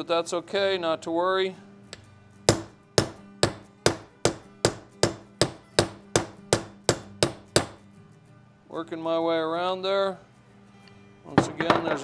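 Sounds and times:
hammer striking metal driver: 1.9 - 7.8.

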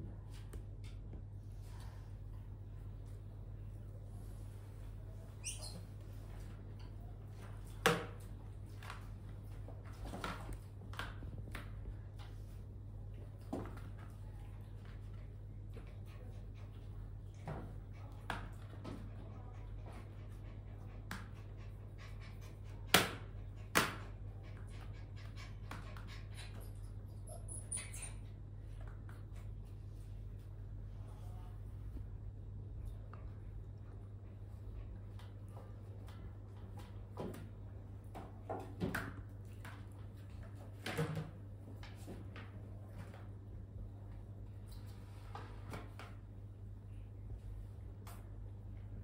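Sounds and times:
steady low hum: 0.0 - 38.6.

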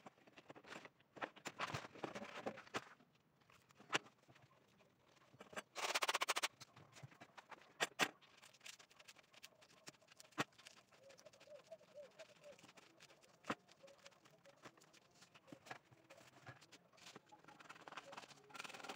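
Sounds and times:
sandpaper crinkling: 7.4 - 18.9.

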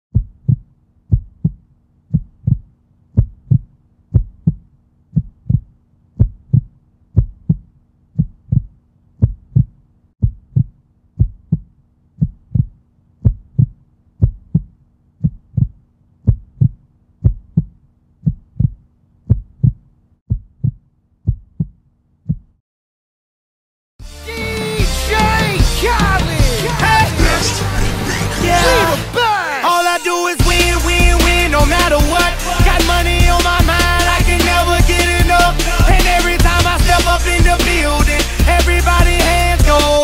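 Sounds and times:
heartbeat thumps: 0.1 - 22.6.

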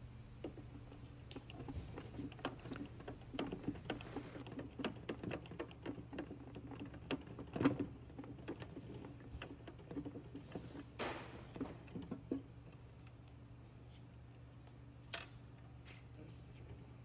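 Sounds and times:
low steady hum: 0.0 - 4.4.

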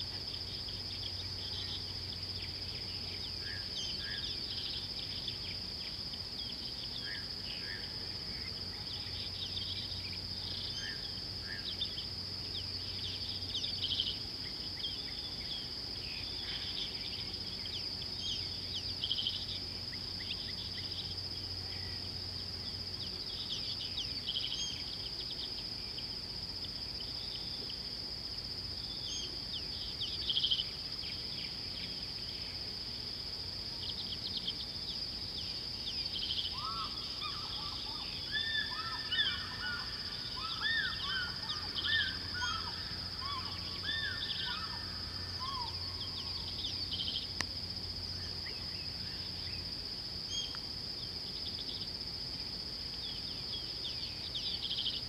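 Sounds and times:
high-pitched insect drone: 35.9 - 50.6
loud bird calls: 36.2 - 47.3.

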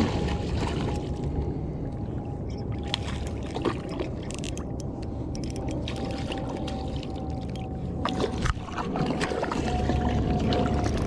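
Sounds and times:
steady low rumble: 0.0 - 11.0
scattered clicks: 4.2 - 6.8.

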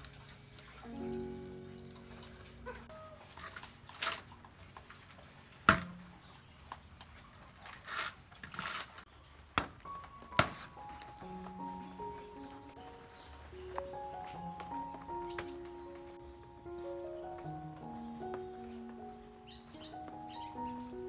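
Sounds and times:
background music: 0.0 - 4.9, 9.6 - 21.0.

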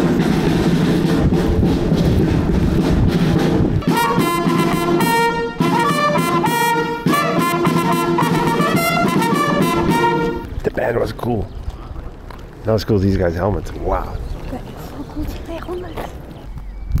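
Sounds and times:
marching band drumming: 0.0 - 10.4
brass held notes: 3.8 - 10.5.

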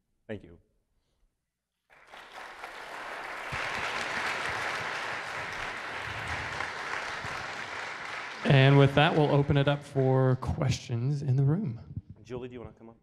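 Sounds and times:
audience applauding: 1.9 - 10.4.

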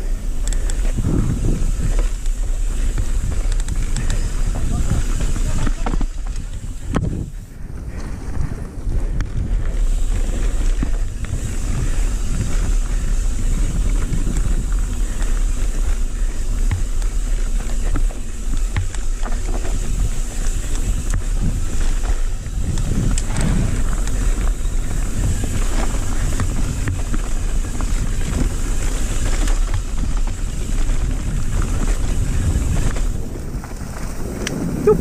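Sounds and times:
bike clicks and rattles: 0.0 - 35.0
tyres rumbling on dirt: 0.0 - 35.0
wind on microphone: 0.0 - 35.0.

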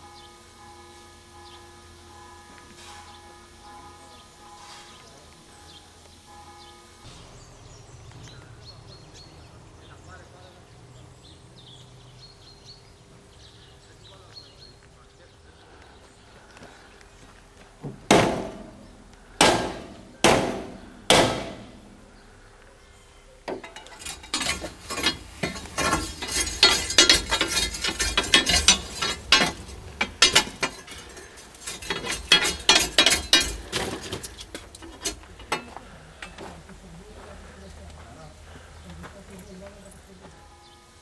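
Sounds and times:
fire irons raking firebox: 2.1 - 7.9, 23.4 - 37.7
shovel clanging on metal: 23.5 - 36.4
clinker and ash dropping: 23.5 - 36.5.

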